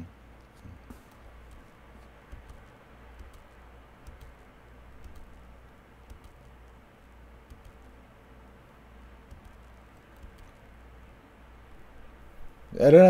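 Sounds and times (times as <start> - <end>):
low steady hum: 0.0 - 13.0
keyboard or mouse clicks: 6.1 - 6.8, 7.4 - 7.9, 9.3 - 10.6.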